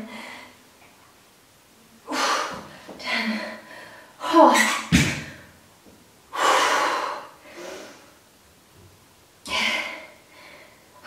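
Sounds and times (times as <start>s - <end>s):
woman breathing hard: 2.1s - 4.3s, 6.3s - 8.2s, 9.5s - 11.0s.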